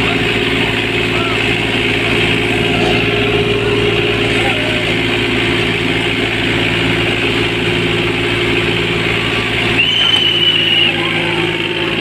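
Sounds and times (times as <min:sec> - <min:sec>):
tractor diesel engines running: 0:00.0 - 0:12.0
high steady whistle: 0:09.7 - 0:11.3.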